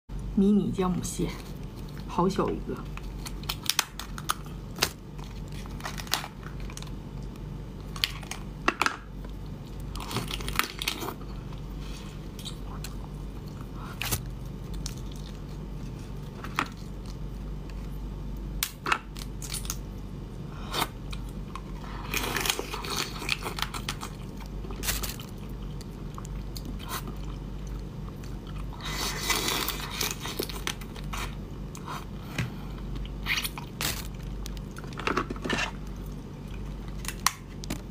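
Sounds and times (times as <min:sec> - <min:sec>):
crunching and chewing: 0:02.8 - 0:37.9
crab shells cracking: 0:02.9 - 0:11.2, 0:18.5 - 0:19.9, 0:21.1 - 0:28.5, 0:33.0 - 0:37.9.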